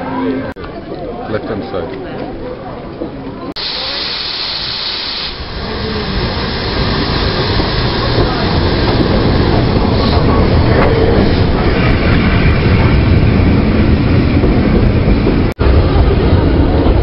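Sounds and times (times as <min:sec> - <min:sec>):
loud hiss of steam: 0:03.6 - 0:12.0
steam train rumbling in: 0:03.6 - 0:17.0.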